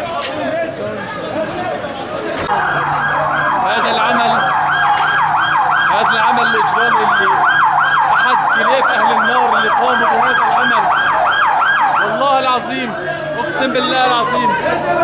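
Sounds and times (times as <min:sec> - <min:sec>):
siren yelping: 0:02.5 - 0:15.0.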